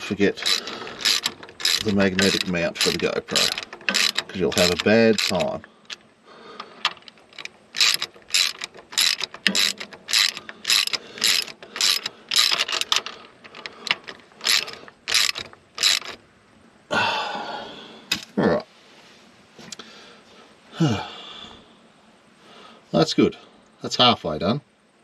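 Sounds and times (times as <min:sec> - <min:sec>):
ratchet wrench clicking: 0:00.0 - 0:06.0, 0:06.8 - 0:16.2.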